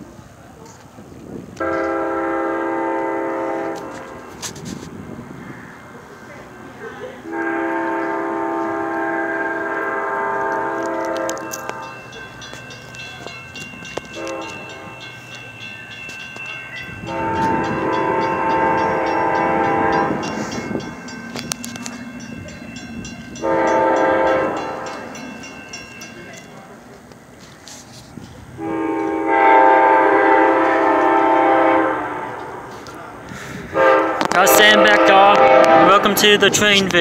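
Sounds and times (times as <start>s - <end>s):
train rumble: 0.0s - 37.0s
train air horn blasts: 1.6s - 4.8s, 7.2s - 12.0s, 14.1s - 15.0s, 17.0s - 21.8s, 23.3s - 25.0s, 28.6s - 32.9s, 33.6s - 36.6s.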